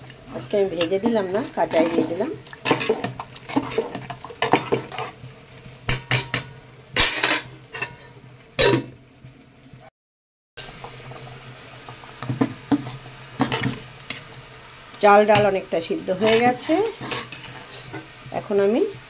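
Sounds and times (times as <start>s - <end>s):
metal ladle scraping a pot: 0.0s - 5.3s, 7.0s - 8.8s, 16.2s - 18.1s.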